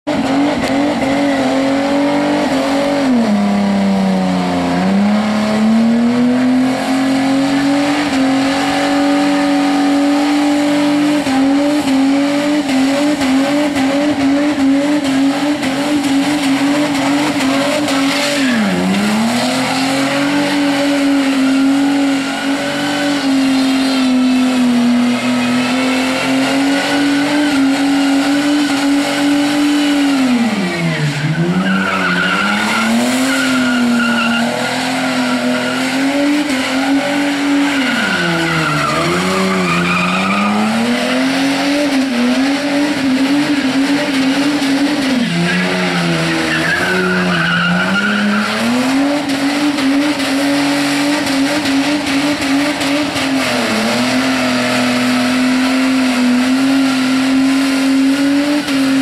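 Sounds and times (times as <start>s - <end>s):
car engine at high revs: 0.0s - 59.0s
tyres squealing: 16.1s - 41.5s, 44.9s - 49.2s.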